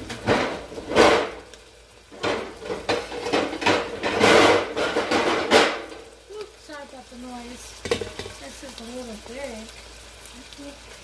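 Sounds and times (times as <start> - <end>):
pots and pans clattering: 0.0 - 6.1, 7.8 - 8.4.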